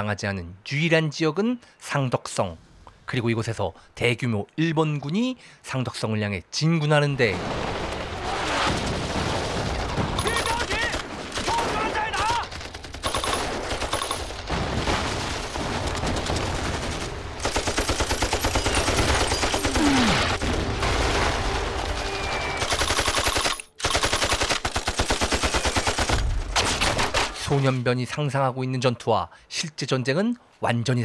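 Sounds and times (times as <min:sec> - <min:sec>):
rapid machine-gun fire: 0:07.9 - 0:21.8, 0:22.5 - 0:27.2
rifle shots: 0:12.6 - 0:14.5, 0:15.4 - 0:21.7, 0:22.5 - 0:27.4.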